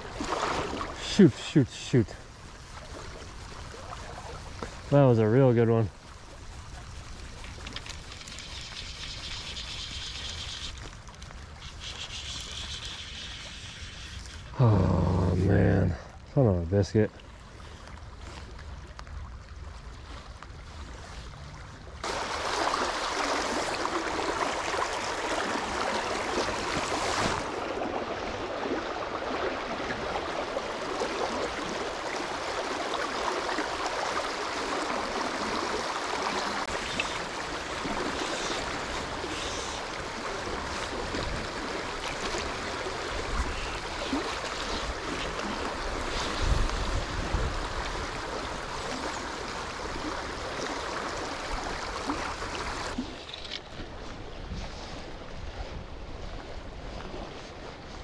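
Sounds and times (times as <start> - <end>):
river rushing over riffles: 22.0 - 53.1.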